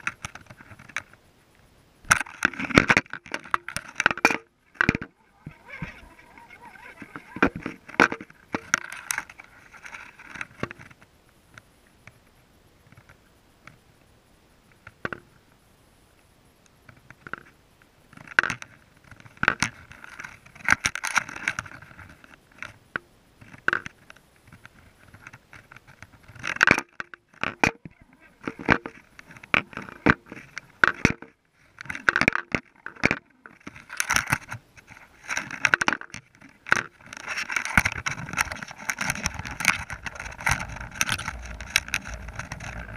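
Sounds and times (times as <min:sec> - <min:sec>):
underwater clicking and knocking: 0:02.1 - 0:10.9, 0:26.3 - 0:34.6, 0:35.2 - 0:42.9.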